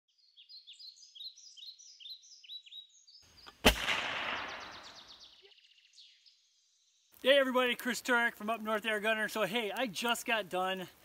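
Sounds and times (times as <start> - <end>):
small birds chirping: 0.1 - 11.0
suppressed air rifle shot: 3.5 - 5.2.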